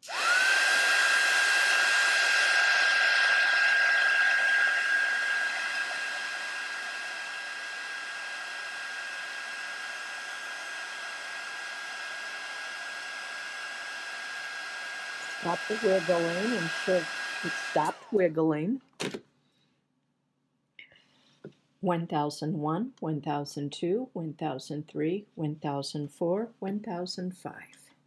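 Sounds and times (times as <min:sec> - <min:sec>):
heat gun fan hiss and whine: 0:00.0 - 0:18.2.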